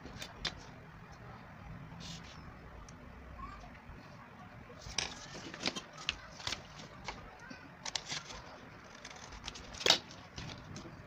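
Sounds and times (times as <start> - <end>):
paper rustling: 4.8 - 7.2, 7.8 - 11.0.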